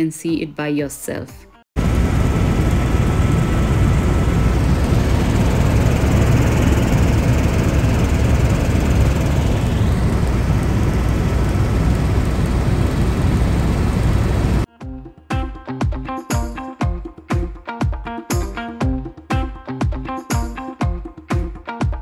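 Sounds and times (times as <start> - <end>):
helicopter rotor and engine drone: 1.8 - 14.7.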